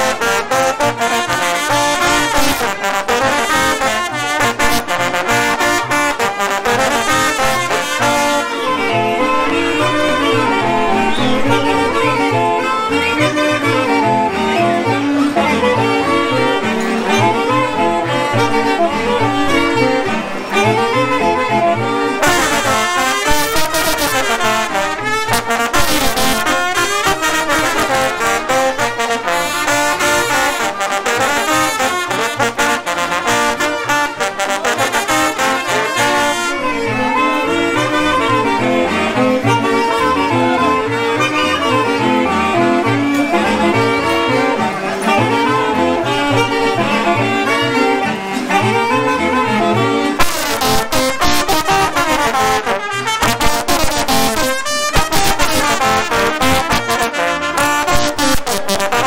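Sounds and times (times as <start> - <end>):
brass and saxophone band playing: 0.0 - 59.0.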